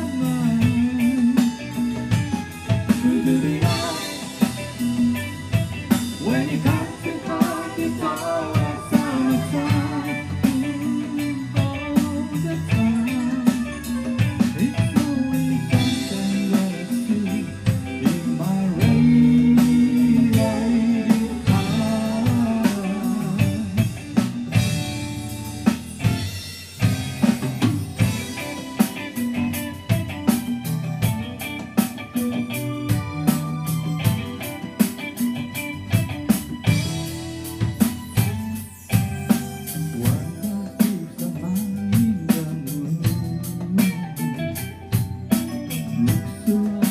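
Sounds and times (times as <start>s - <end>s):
person singing: 0.0s - 5.3s, 6.1s - 24.4s, 39.3s - 46.9s
drum kit: 0.0s - 46.9s
electric bass: 0.0s - 46.9s
electric guitar: 0.0s - 46.9s.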